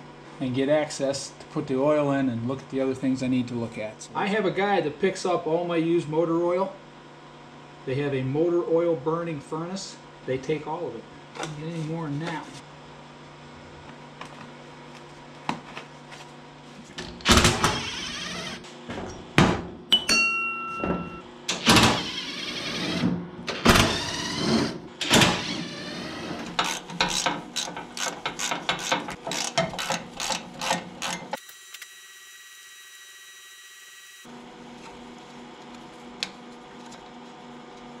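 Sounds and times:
cordless drill running: 17.5s - 18.6s, 21.8s - 34.3s.

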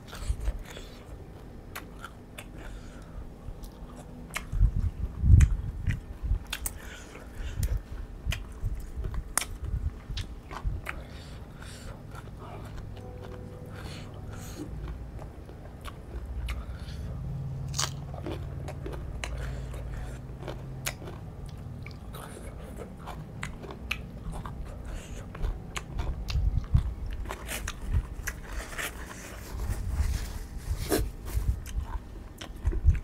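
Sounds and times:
person chewing crunchy vegetables: 0.0s - 33.0s.

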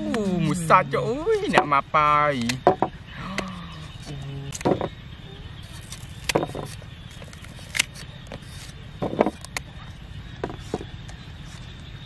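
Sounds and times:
knife cutting mango: 5.7s - 8.8s.

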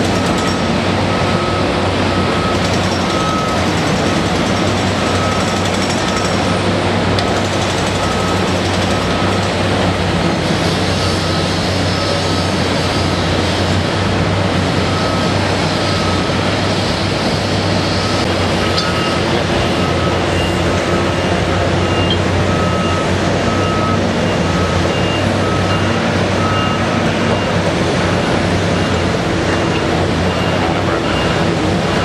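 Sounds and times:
backup alarm beeping: 0.0s - 6.4s
excavator diesel engine running: 0.0s - 32.0s.

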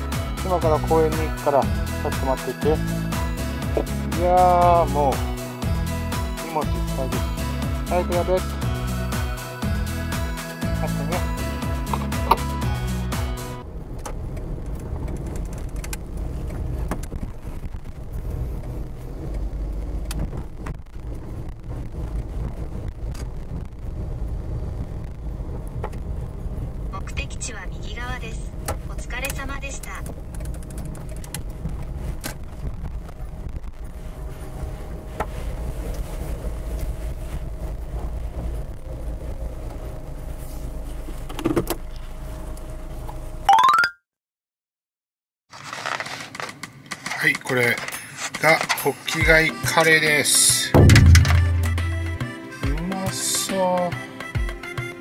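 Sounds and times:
road and engine rumble in car: 0.0s - 43.5s, 45.6s - 53.5s
rising electronic tones: 43.5s - 44.0s, 50.8s - 52.3s
short clicks or knocks: 50.8s - 52.0s.

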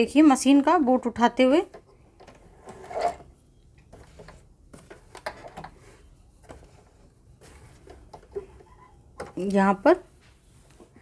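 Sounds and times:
soft fabric rustles: 3.2s - 11.0s.

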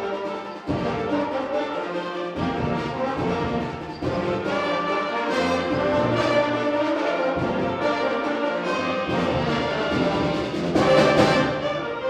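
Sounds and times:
brass section: 0.0s - 12.0s
concert band playing a march: 0.0s - 12.0s.

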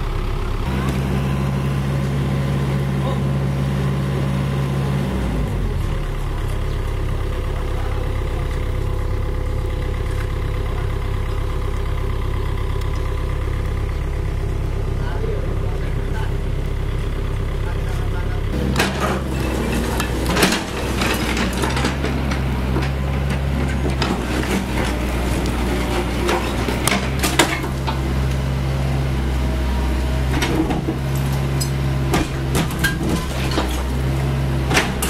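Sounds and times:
excavator diesel engine running: 0.0s - 35.0s
concrete cracking and falling: 18.6s - 28.4s, 30.4s - 35.0s.

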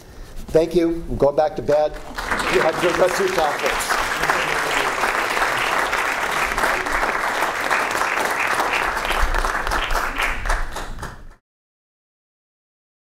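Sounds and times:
audience applauding: 2.0s - 11.4s.

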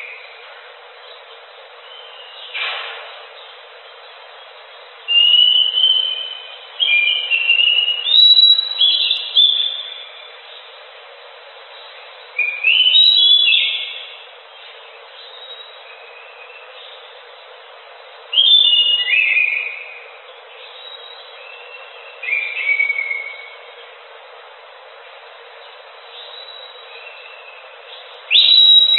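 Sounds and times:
steady background hiss: 0.0s - 28.9s
thrush singing whistled phrases: 5.1s - 10.1s, 12.4s - 14.2s, 28.3s - 28.9s.

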